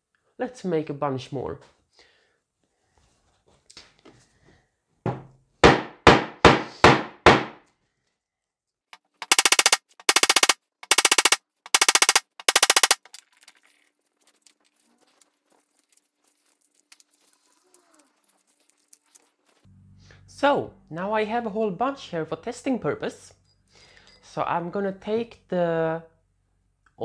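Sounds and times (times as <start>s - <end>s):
fast rattling clatter: 9.2s - 13.6s.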